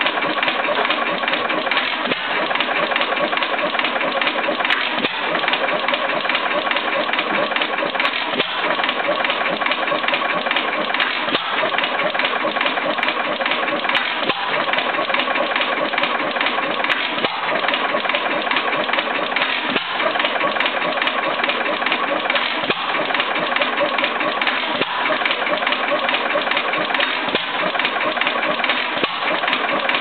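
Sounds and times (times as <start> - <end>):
stationary engine clattering: 0.0 - 30.0.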